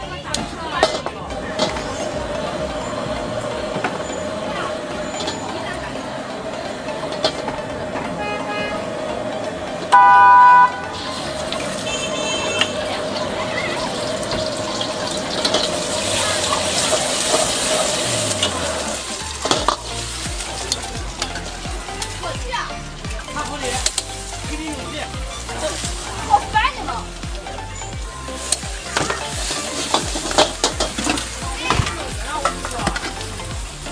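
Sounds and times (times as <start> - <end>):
loud horn: 8.1 - 9.2, 9.9 - 13.1
egg sizzling in hot oil: 10.7 - 33.9
metal ladle scraping pan: 28.4 - 31.4.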